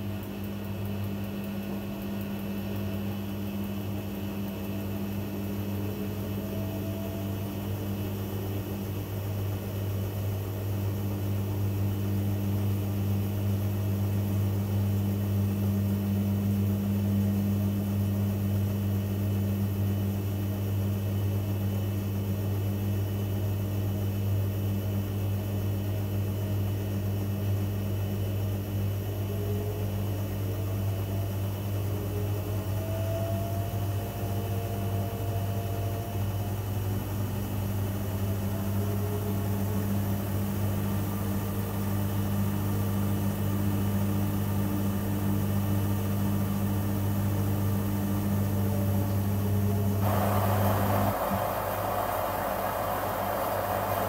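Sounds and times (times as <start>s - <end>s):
washing machine motor hum: 44.9s - 54.0s
faint rising whine: 49.4s - 54.0s.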